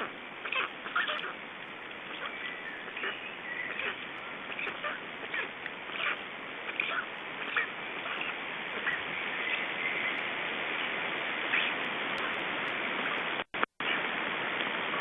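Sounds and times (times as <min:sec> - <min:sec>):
faint bird calls: 0:00.0 - 0:01.4, 0:02.0 - 0:10.9, 0:11.5 - 0:12.4
forest ambience hiss: 0:00.0 - 0:15.0.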